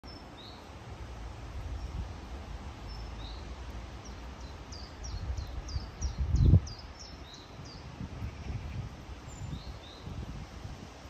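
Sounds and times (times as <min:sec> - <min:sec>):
wind in bamboo leaves: 0:00.0 - 0:11.0
small bird chirping: 0:00.1 - 0:00.7, 0:02.8 - 0:10.2
low gusty rumble: 0:00.8 - 0:11.0.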